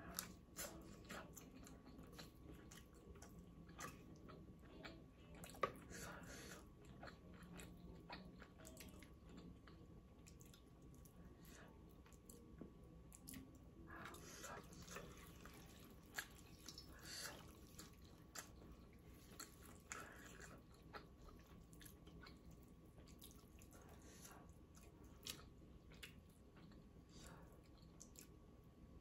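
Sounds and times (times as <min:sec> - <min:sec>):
chewing and slurping noodles: 0:13.2 - 0:28.3.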